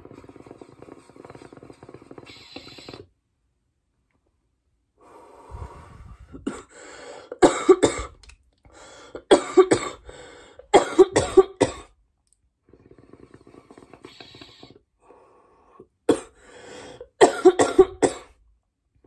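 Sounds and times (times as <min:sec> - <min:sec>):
breathy exhale: 0:05.0 - 0:07.4, 0:08.7 - 0:09.2, 0:10.0 - 0:10.7, 0:12.8 - 0:17.1
person coughing hard: 0:06.4 - 0:06.7, 0:07.4 - 0:08.2, 0:09.2 - 0:10.1, 0:10.7 - 0:11.9, 0:16.1 - 0:16.4, 0:17.2 - 0:18.4.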